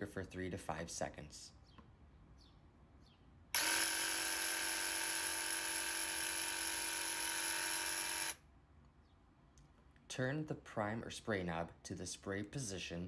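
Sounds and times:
electric sprayer pump buzzing: 3.6s - 8.4s.

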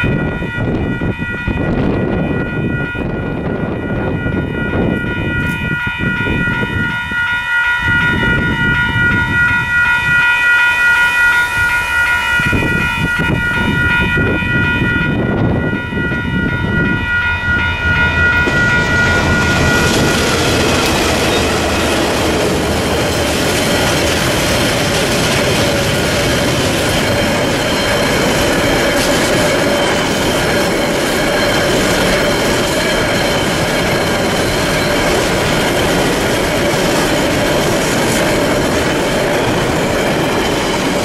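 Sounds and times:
level-crossing warning bells: 0.0s - 41.0s
diesel locomotive rumble: 11.2s - 41.0s.

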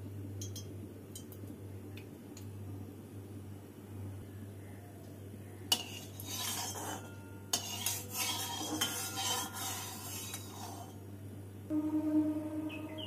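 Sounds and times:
steel spatula scraping pan: 5.7s - 11.0s
low hum: 11.2s - 13.0s.

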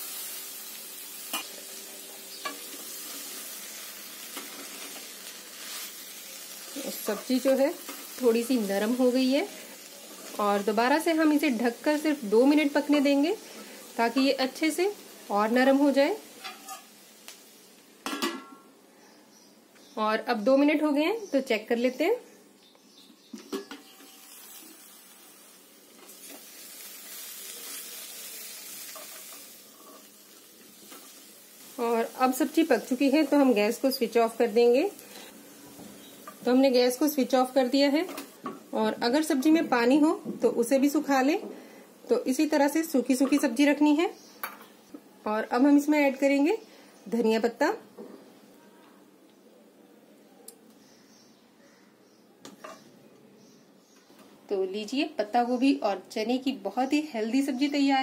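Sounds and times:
food sizzling in a pan: 0.0s - 18.8s, 23.5s - 46.7s
wooden spatula scraping: 16.4s - 16.9s.

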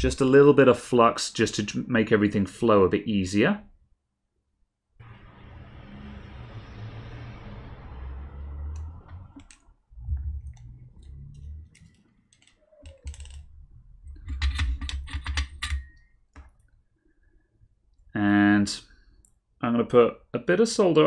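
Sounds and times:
soft low thumps: 9.9s - 11.3s
tools clicking and tapping: 14.1s - 16.6s.

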